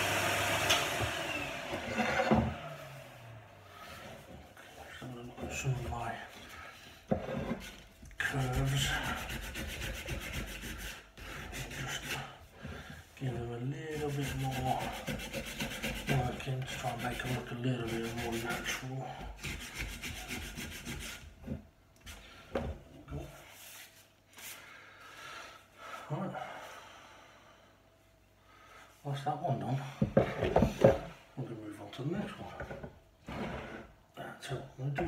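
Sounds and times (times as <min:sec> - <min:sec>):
sandpaper sanding wood: 0:07.7 - 0:12.3, 0:13.9 - 0:21.3.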